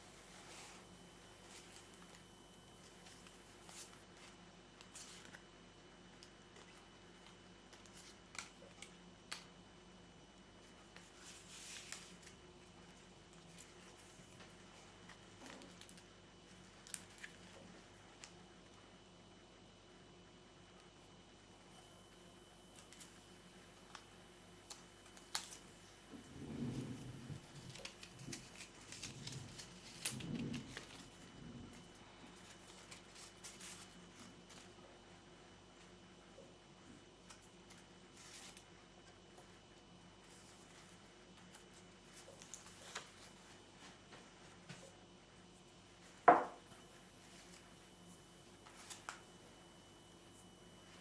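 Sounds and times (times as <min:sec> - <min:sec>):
quiet steady hum: 0:00.0 - 0:51.0
paper rustle: 0:00.1 - 0:02.2, 0:02.8 - 0:05.5, 0:10.6 - 0:18.4, 0:24.6 - 0:34.9, 0:37.3 - 0:39.5, 0:40.2 - 0:44.9, 0:48.6 - 0:49.3.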